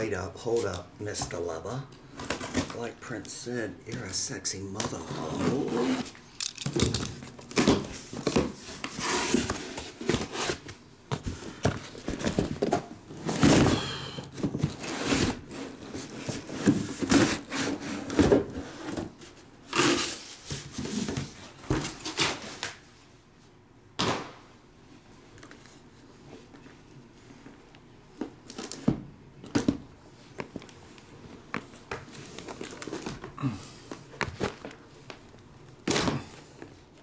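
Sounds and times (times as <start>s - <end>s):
cardboard rubbing and scraping: 5.0s - 6.2s, 8.0s - 10.7s.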